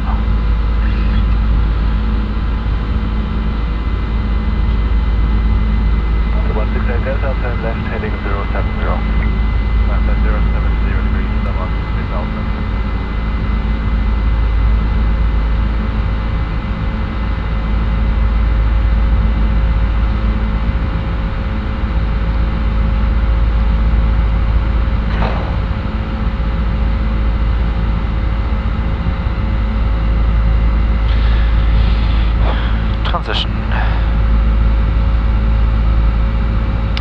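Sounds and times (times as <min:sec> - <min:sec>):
jet engines droning: 0:00.0 - 0:37.0.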